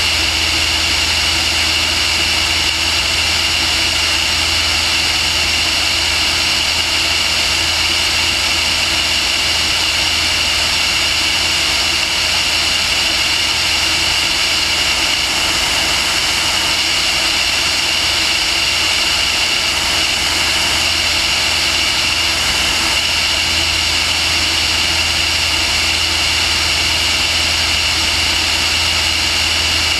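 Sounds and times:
aircraft motor and propeller: 0.0s - 29.9s.

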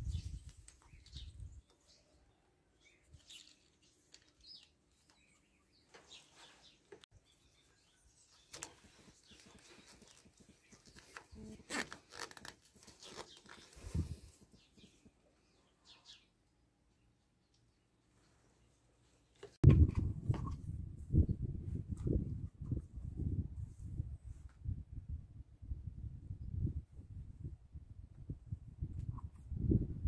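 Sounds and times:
birds chirping: 0.0s - 16.4s.

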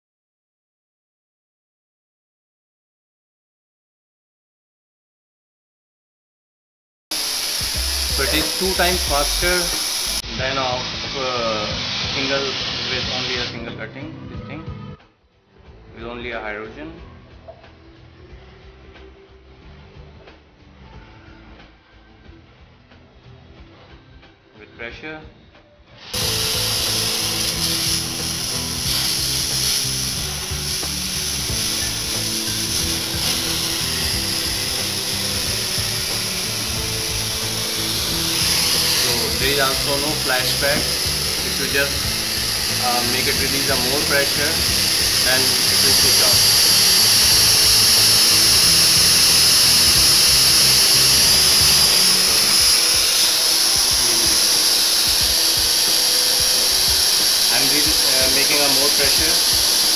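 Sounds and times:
torch flame hissing: 7.1s - 13.6s, 26.1s - 59.9s.

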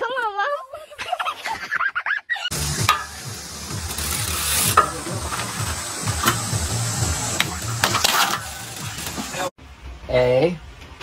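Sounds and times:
bike clicks and knocks: 2.5s - 9.5s
bike tyres hissing and rumbling: 2.5s - 9.5s.

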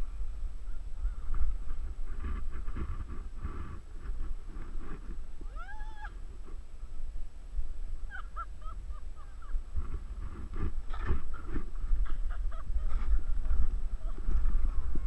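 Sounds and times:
wind rumble on microphone: 0.0s - 15.0s.

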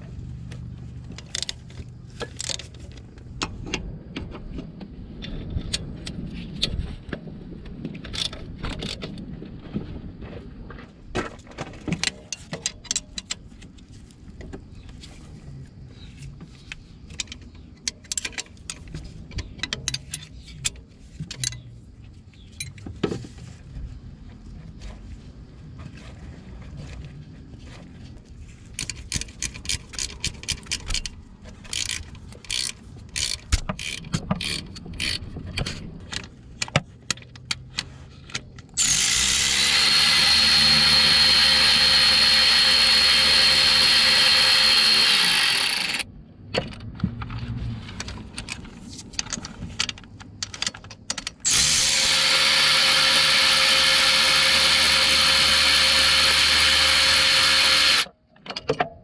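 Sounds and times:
hand ratchet clicking: 28.8s - 35.8s, 38.8s - 46.0s, 51.4s - 58.1s
power tool whining: 38.8s - 46.1s, 51.4s - 58.1s.

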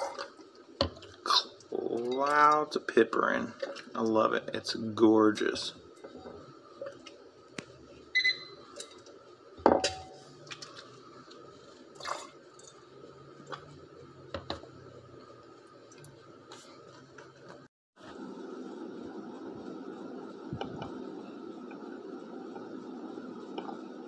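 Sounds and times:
faint steady hum: 0.0s - 24.0s
glassware clinking: 9.6s - 10.2s.

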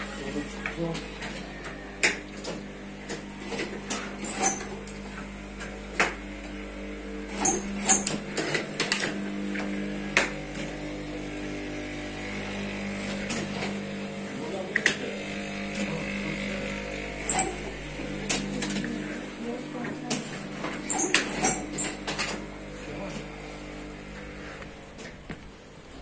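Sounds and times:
steady machine hum: 0.0s - 26.0s.

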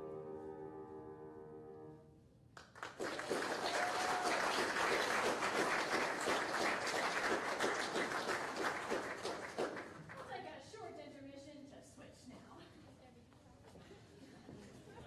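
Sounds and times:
audience applause: 2.6s - 10.2s.

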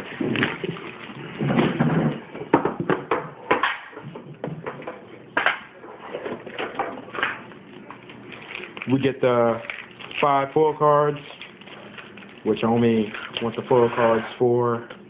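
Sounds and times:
plastic wrap crinkling: 0.0s - 1.4s, 7.6s - 13.9s.

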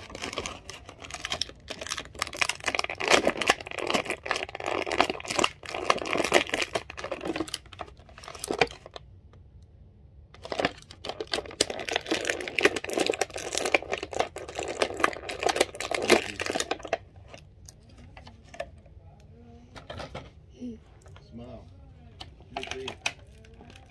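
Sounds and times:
plastic packaging crinkling and tearing: 0.0s - 9.0s, 10.4s - 17.4s, 22.5s - 23.9s.

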